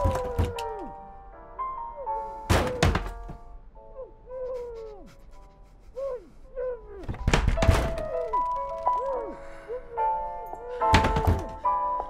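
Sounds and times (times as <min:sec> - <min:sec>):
woman crying: 0:04.2 - 0:07.0.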